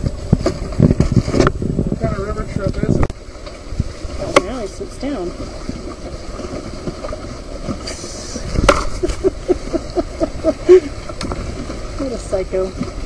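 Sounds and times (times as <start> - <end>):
wind and water hiss: 0.0 - 13.0.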